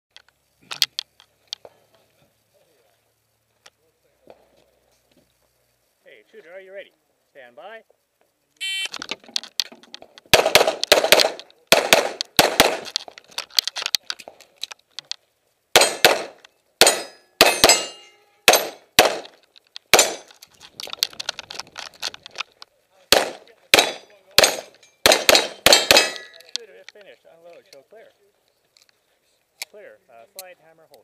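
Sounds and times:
shot timer beep: 8.6 - 8.9
rapid pistol shots: 10.3 - 12.9, 15.7 - 20.3, 23.1 - 26.4
steel target ringing: 16.8 - 18.8, 23.8 - 26.4.

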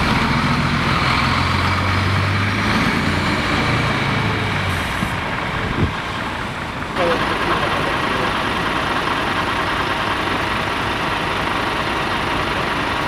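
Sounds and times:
heavy vehicle engine idling: 3.5 - 13.0
street noise hiss: 4.2 - 13.0.

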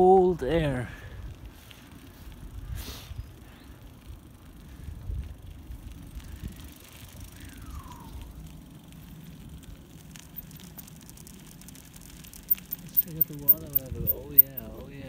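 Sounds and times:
tyres rumbling on gravel: 8.3 - 15.0
wind on microphone: 13.5 - 14.6.

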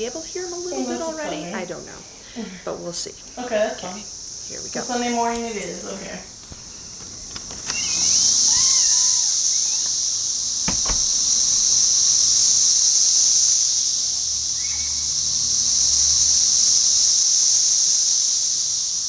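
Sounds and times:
cicadas droning: 0.0 - 19.0
brief knock: 10.7 - 11.1.

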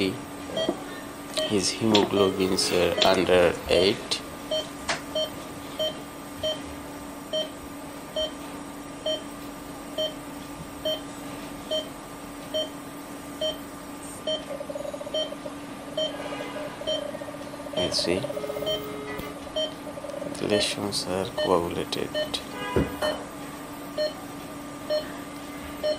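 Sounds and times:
steady hum: 0.0 - 25.9
short electronic beeps: 2.2 - 3.3, 17.8 - 19.8.

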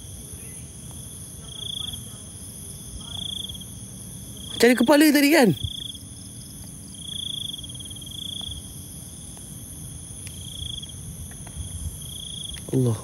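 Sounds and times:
cricket pulsing trill: 0.0 - 13.0
high-pitched insect buzz: 3.0 - 11.0.

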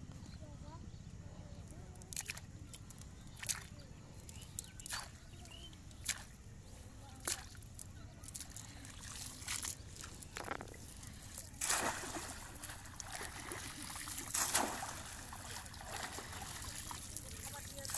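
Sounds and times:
water dripping from net: 2.0 - 6.3, 7.2 - 10.7, 11.5 - 17.9
cast net splashing in water: 4.8 - 6.4, 7.2 - 17.9.

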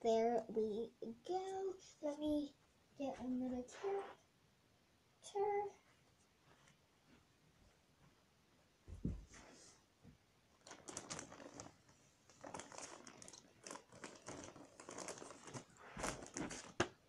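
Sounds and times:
rustling and crinkling: 5.8 - 8.2, 8.9 - 17.0
soft thump: 8.9 - 9.4.

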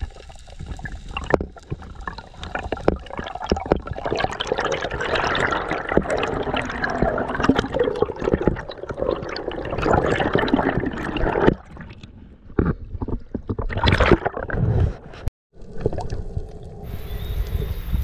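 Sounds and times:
underwater sloshing and bubbling: 0.0 - 17.9
loud gurgling bursts: 2.4 - 11.9.

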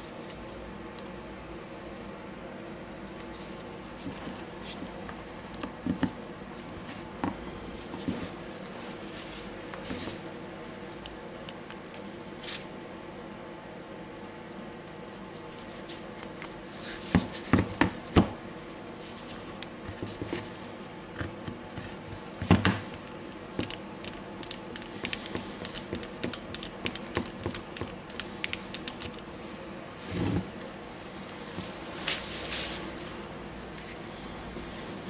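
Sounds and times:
soft rustle: 7.8 - 11.0.

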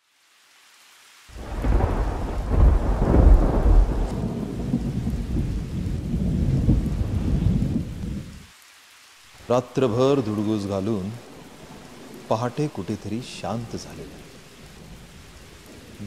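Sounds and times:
rain hiss: 0.0 - 16.0
thunder rumbling: 1.3 - 8.5.

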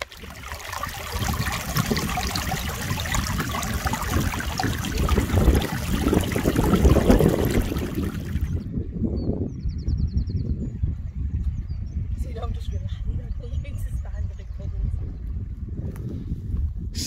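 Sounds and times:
stream trickling over rocks: 0.0 - 8.6.

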